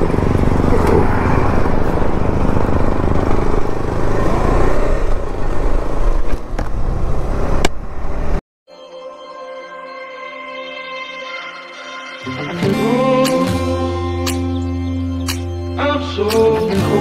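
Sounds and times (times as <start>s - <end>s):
motorcycle engine running: 0.0s - 6.2s
sharp click: 14.2s - 14.6s, 15.2s - 15.5s, 16.2s - 16.7s.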